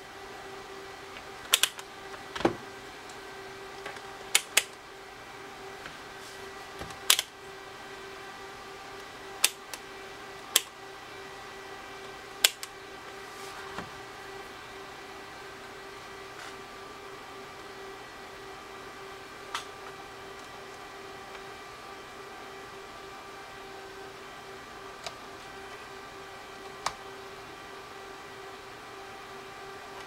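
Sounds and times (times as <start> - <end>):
steady hum: 0.0 - 30.0
multimeter probes clicking: 1.5 - 1.8, 3.8 - 4.8, 6.9 - 7.3, 9.4 - 9.8, 10.5 - 10.7, 12.4 - 12.7.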